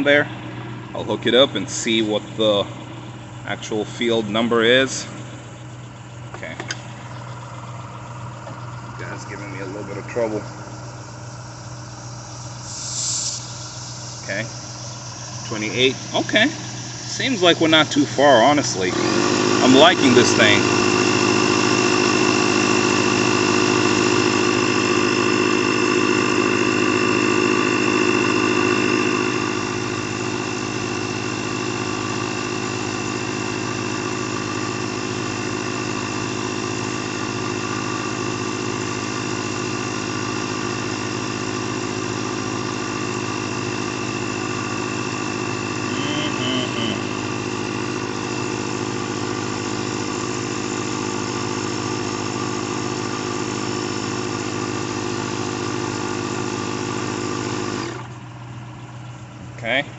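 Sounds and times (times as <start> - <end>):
high whine: 0.0 - 57.0
air compressor running: 0.0 - 59.9.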